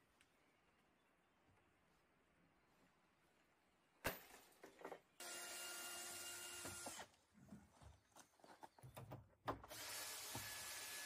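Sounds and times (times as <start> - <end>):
cordless drill driving a screw: 5.2 - 7.2, 9.7 - 11.0.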